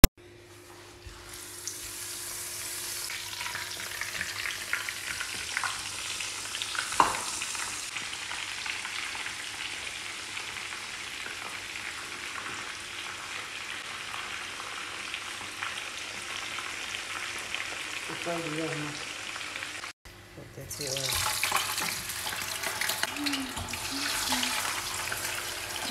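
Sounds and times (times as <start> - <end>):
fish frying in hot oil: 1.4 - 19.9, 20.8 - 25.9
oil crackles and pops: 3.1 - 18.2.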